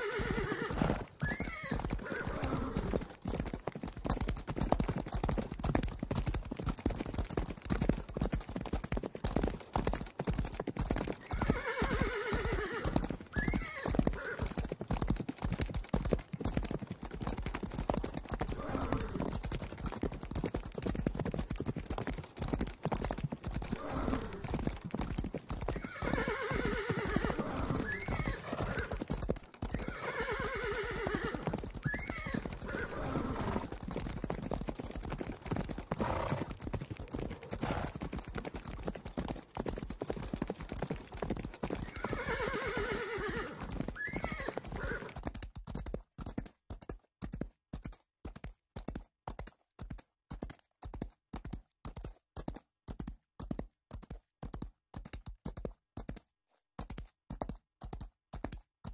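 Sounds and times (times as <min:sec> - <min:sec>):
horses whinnying: 0:00.0 - 0:03.1, 0:11.2 - 0:14.6, 0:18.4 - 0:19.3, 0:23.6 - 0:24.6, 0:25.6 - 0:33.8, 0:35.9 - 0:36.6, 0:37.3 - 0:38.0, 0:41.8 - 0:45.2
galloping hooves: 0:00.0 - 0:58.9.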